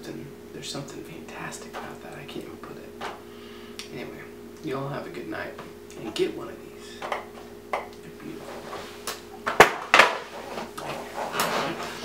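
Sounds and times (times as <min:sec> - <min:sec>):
low electrical hum: 0:00.0 - 0:12.0
sharp handling clicks and knocks: 0:03.0 - 0:03.2.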